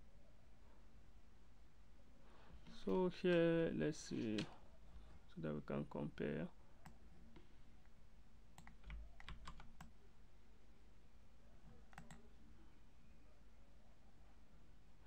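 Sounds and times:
keyboard and mouse clicking: 0:08.6 - 0:09.9, 0:11.9 - 0:12.3.

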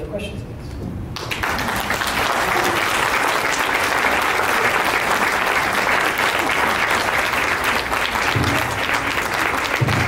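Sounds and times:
audience applauding: 0:01.2 - 0:10.0.

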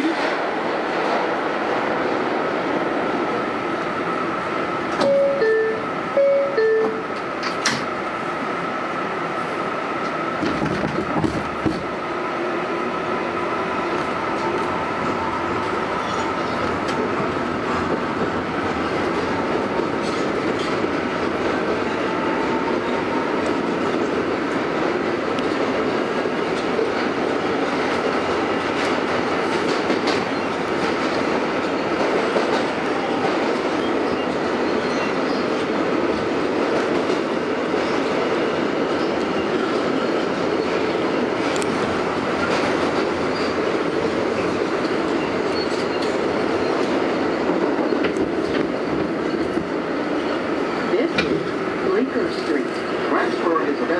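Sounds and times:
subway wheels rumbling on rail: 0:00.0 - 0:53.9
clacks over rail joints: 0:10.0 - 0:11.9, 0:17.7 - 0:21.7, 0:46.8 - 0:49.7, 0:51.1 - 0:51.6.

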